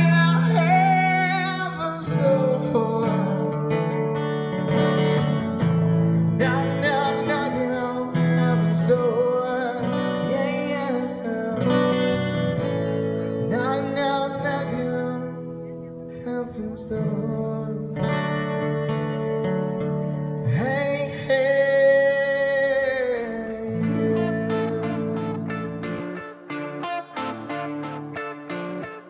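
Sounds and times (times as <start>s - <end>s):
man singing into microphone: 0.0s - 4.2s, 6.1s - 12.5s, 13.3s - 18.6s, 20.4s - 25.9s
strummed acoustic guitar: 0.0s - 29.0s.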